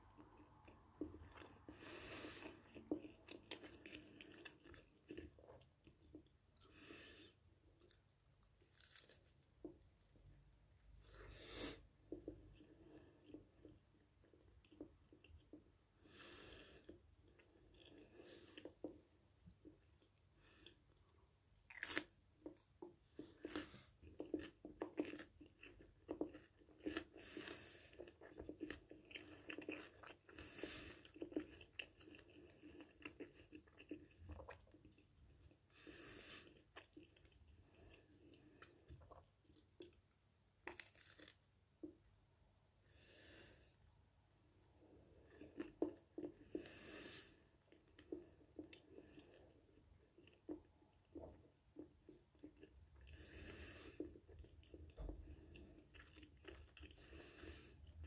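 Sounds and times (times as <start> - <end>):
person chewing crunchy toast: 0.1 - 10.2, 11.0 - 42.0, 44.8 - 58.0.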